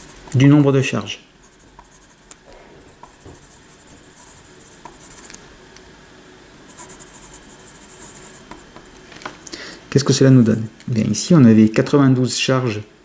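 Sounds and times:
pen scratching on paper: 0.0 - 0.6, 1.4 - 2.3, 3.0 - 5.4, 6.7 - 8.7.

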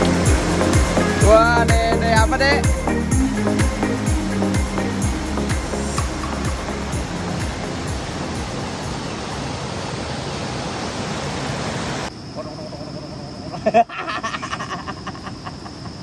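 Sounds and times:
river water rushing: 0.0 - 12.2.

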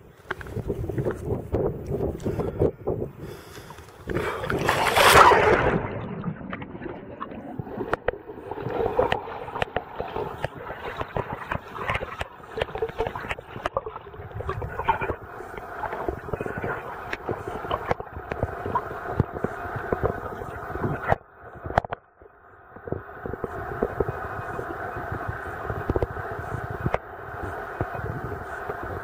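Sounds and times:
muffled underwater sound: 0.0 - 29.0
underwater clicks and gurgles: 0.0 - 29.0
splash into water: 4.1 - 13.4.

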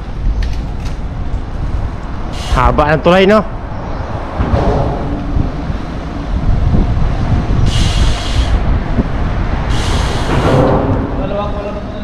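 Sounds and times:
traffic noise: 0.0 - 12.0
wind rumble: 0.0 - 12.0.

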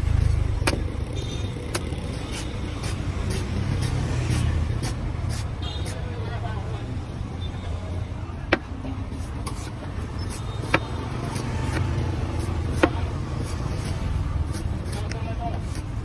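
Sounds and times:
street traffic rumble: 0.0 - 16.0
cleaver chopping coconut husk: 0.5 - 1.0, 1.6 - 6.0, 10.3 - 15.9.

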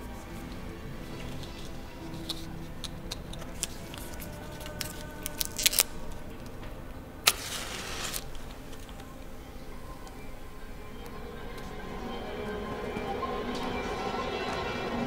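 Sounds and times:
lighter gas hiss: 7.2 - 9.0.

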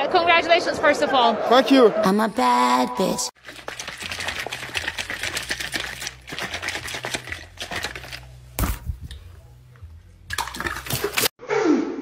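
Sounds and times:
liquid sloshing in shaken bottle: 3.4 - 9.2, 10.3 - 11.3.

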